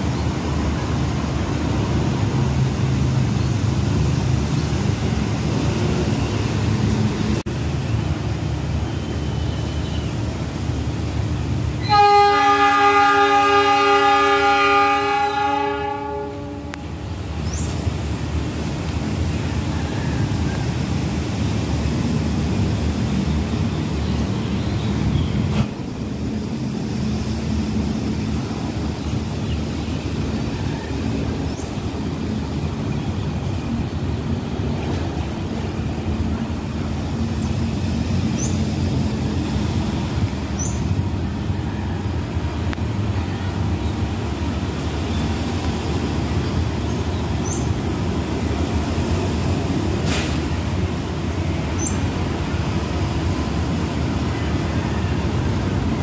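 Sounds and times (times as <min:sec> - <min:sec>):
distant locomotive engine rumble: 0:00.0 - 0:56.0.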